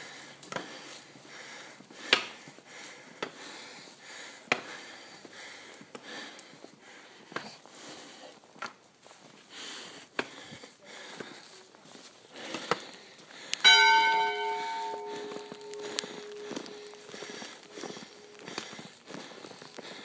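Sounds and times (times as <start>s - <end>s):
church bell ringing: 13.6s - 20.0s
footsteps in deep snow: 13.7s - 20.0s.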